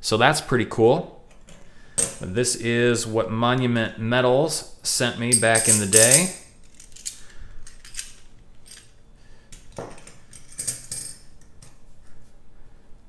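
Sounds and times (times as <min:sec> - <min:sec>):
silver coins clinking: 0:05.3 - 0:08.9, 0:10.3 - 0:11.3.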